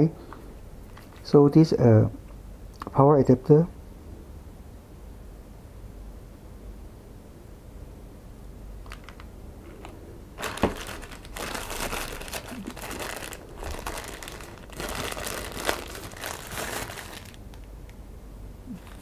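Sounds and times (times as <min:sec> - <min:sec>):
plastic bag crinkling: 0:08.8 - 0:17.7, 0:18.7 - 0:19.0
plastic bag snap: 0:10.4 - 0:17.7.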